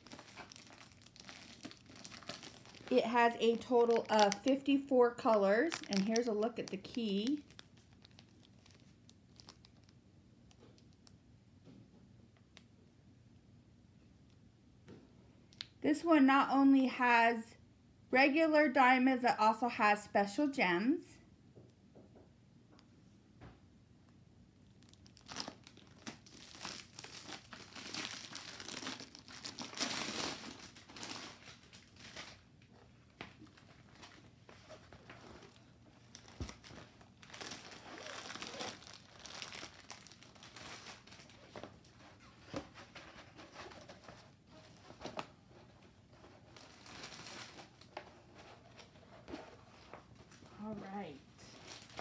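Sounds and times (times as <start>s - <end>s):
plastic covering crinkling: 0.0s - 11.1s, 24.6s - 52.0s.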